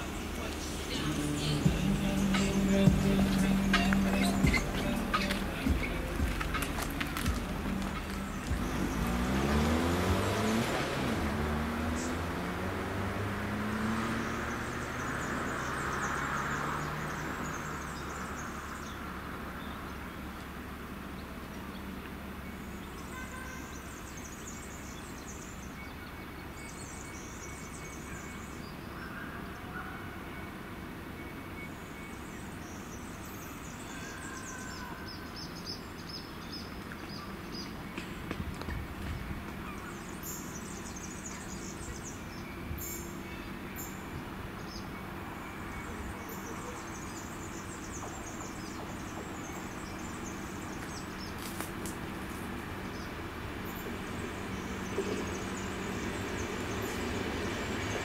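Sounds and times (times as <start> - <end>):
low train rumble: 0.0 - 13.0, 37.2 - 58.0
birds chirping: 0.0 - 58.0
vehicle engine: 0.0 - 58.0.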